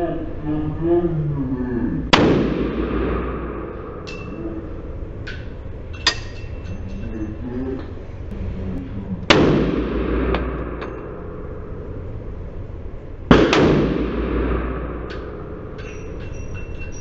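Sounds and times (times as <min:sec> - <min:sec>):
pistol shots: 0:02.1 - 0:04.4, 0:09.3 - 0:11.6, 0:13.3 - 0:15.8
metallic pings and clinks: 0:05.2 - 0:07.9, 0:15.8 - 0:17.0.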